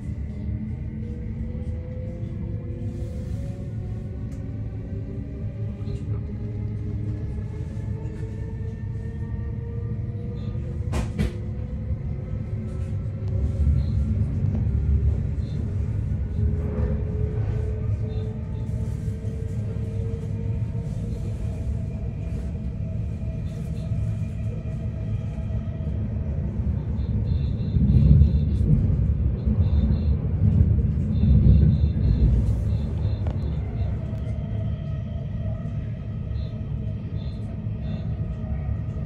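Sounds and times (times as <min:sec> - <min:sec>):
train wheels rumbling on track: 0:05.7 - 0:39.0
faint steady tones: 0:11.5 - 0:39.0.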